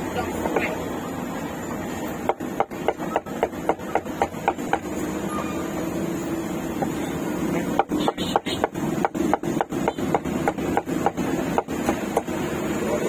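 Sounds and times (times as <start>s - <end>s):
cleaver chopping meat on wood: 2.2s - 4.9s, 6.7s - 7.0s, 7.6s - 12.4s.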